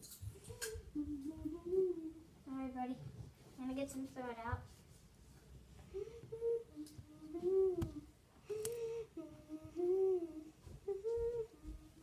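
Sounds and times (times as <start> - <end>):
child humming: 0.4 - 2.3, 5.9 - 12.0.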